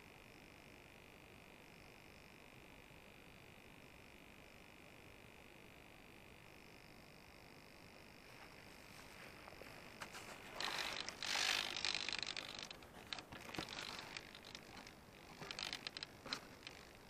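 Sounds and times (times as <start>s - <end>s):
rustling in tall grass: 8.2s - 16.9s
foam plane clicks and creaks: 10.0s - 17.0s.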